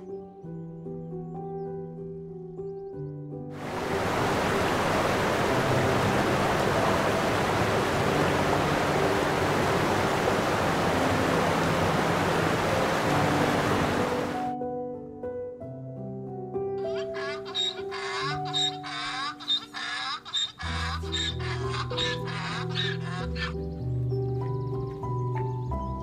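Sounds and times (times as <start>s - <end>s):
soft background music: 0.0s - 26.0s
ocean waves breaking: 3.6s - 14.5s.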